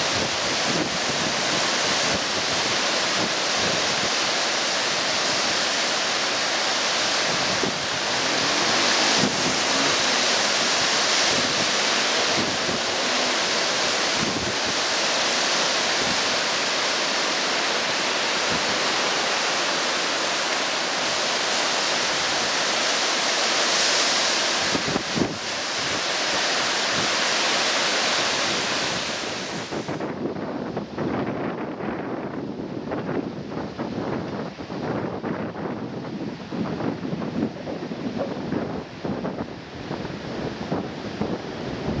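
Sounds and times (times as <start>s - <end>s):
wind buffeting microphone: 0.0s - 23.0s, 23.8s - 27.5s, 28.2s - 42.0s
sea surf breaking: 0.0s - 30.1s.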